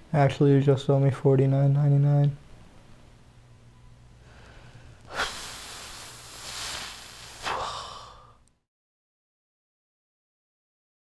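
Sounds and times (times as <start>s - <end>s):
person exhaling: 4.3s - 8.4s.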